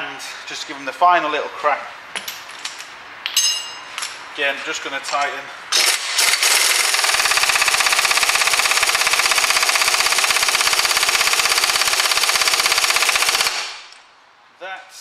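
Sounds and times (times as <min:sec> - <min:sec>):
pneumatic impact wrench hammering: 0:05.7 - 0:13.9.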